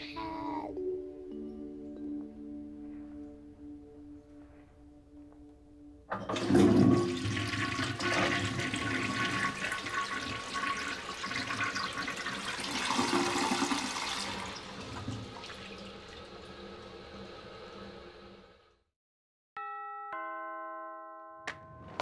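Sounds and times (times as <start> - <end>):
toilet flushing: 6.1 - 18.8.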